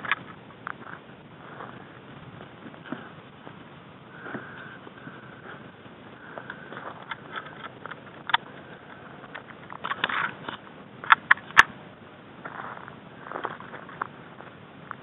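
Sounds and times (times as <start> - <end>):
footsteps on dirt trail: 0.0 - 11.7, 12.4 - 15.0
sharp clicks: 6.4 - 8.6, 9.2 - 11.8.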